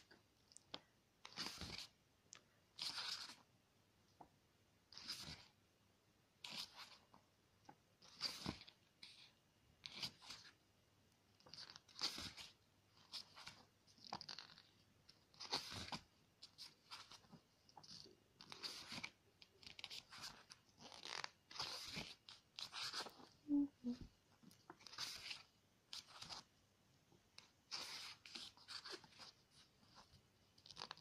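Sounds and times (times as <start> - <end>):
pages turning: 0.7 - 2.0, 2.7 - 3.5, 4.9 - 5.6, 6.4 - 7.2, 8.0 - 10.6, 11.3 - 23.3, 24.5 - 26.5, 27.4 - 31.0.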